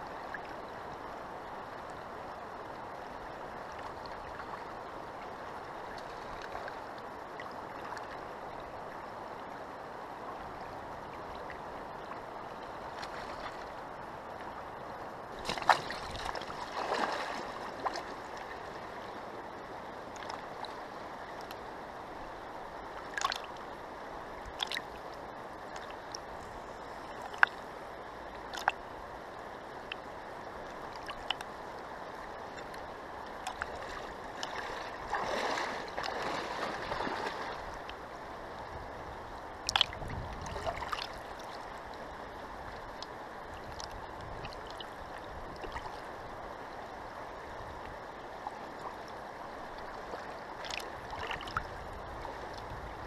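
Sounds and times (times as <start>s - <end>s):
river water rushing: 0.0s - 53.0s
water splashing: 15.4s - 18.7s, 23.1s - 23.6s, 24.6s - 25.0s, 33.4s - 38.0s, 39.6s - 41.5s.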